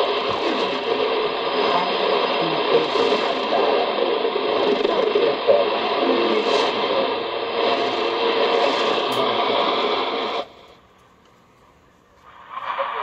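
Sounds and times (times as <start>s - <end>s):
noisy shortwave radio broadcast: 0.0s - 10.8s, 12.1s - 13.0s
radio hiss: 0.0s - 10.8s, 12.1s - 13.0s.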